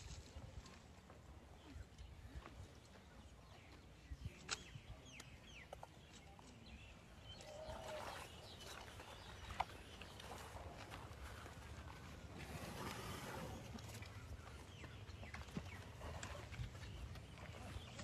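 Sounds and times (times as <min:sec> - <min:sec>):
small birds chirping: 0:01.5 - 0:18.0.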